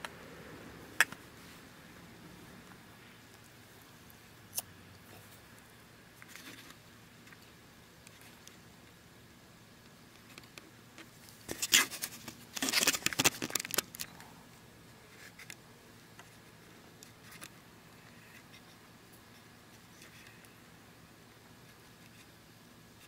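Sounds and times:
low hiss: 0.0 - 12.6.

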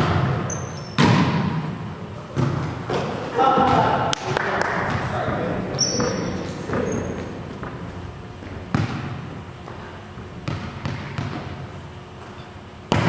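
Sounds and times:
volleyball thumps echoing: 0.0 - 11.7
background hubbub in a hall: 1.7 - 8.8.

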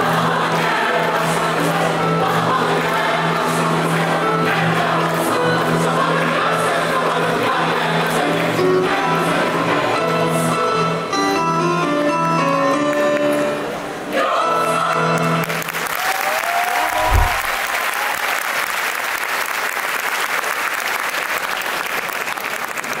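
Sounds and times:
mixed choir singing: 0.0 - 10.8, 13.4 - 15.6, 16.9 - 17.7
audience applause: 15.4 - 23.0
short thump: 17.0 - 17.6.

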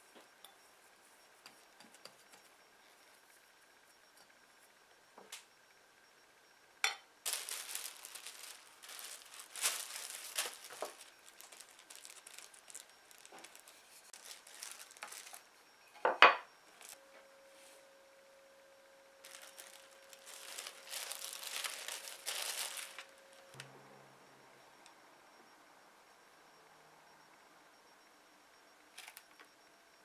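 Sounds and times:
plastic film crinkling: 7.2 - 15.5, 16.7 - 17.0, 19.2 - 23.6.

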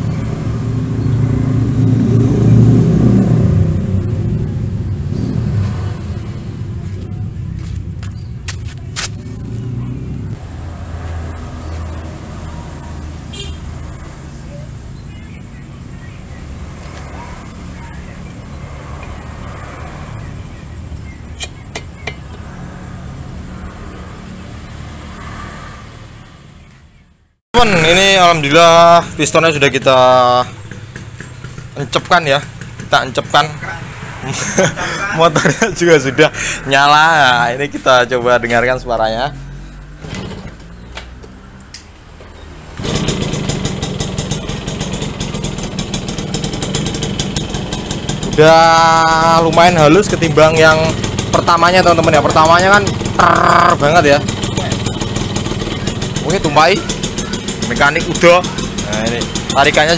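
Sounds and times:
moped engine idling: 28.4 - 34.0, 42.8 - 59.9.

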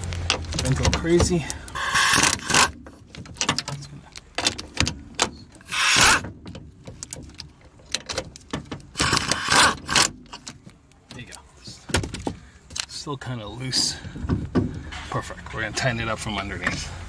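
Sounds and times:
socket ratchet clicking: 0.3 - 2.8, 4.4 - 6.3.

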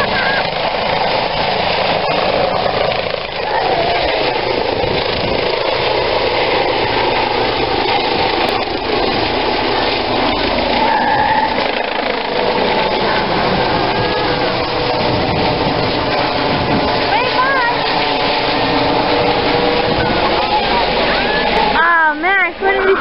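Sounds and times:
helicopter rotor and turbine: 0.0 - 23.0.

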